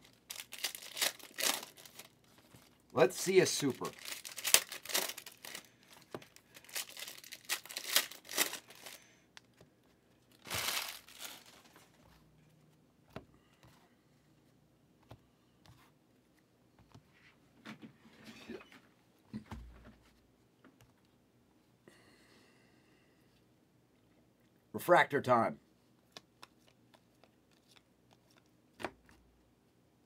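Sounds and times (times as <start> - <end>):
foil wrappers crinkling and tearing: 0.0 - 9.1, 10.3 - 11.9.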